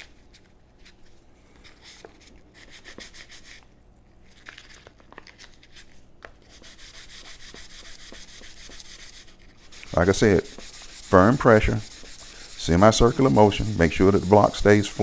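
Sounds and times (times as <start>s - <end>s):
sandpaper rubbing on wood: 2.6s - 3.6s, 6.5s - 15.0s
sandpaper crinkling: 4.2s - 15.0s.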